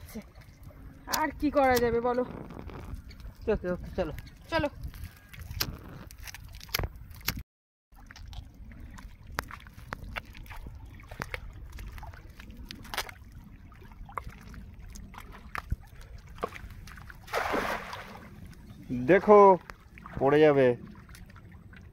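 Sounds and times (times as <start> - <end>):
steady low rumble: 8.3 - 21.9.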